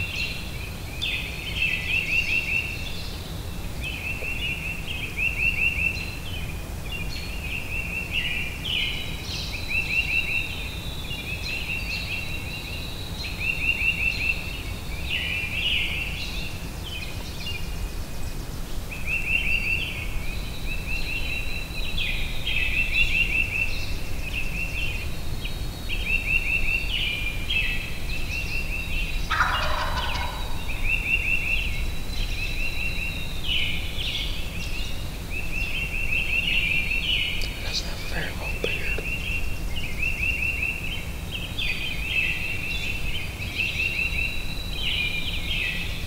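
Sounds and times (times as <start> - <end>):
songbirds trilling and whistling: 0.0 - 46.0
turkey gobbling: 29.3 - 30.8.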